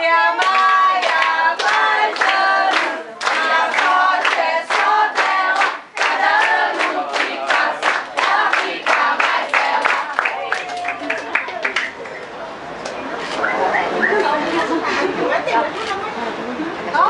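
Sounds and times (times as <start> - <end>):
party guests singing together: 0.0 - 10.4
rhythmic clapping: 0.0 - 14.4.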